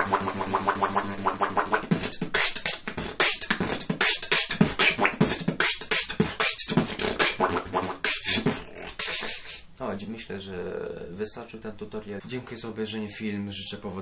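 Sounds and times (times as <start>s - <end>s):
beatboxing: 0.0s - 9.8s.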